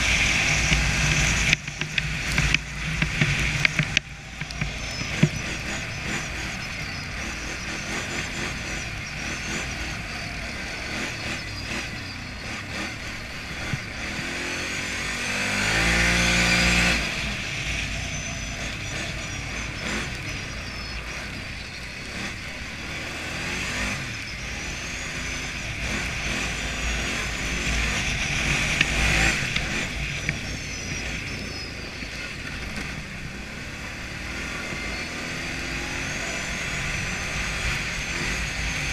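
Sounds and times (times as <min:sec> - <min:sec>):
quad engine running and revving: 0:00.0 - 0:38.9.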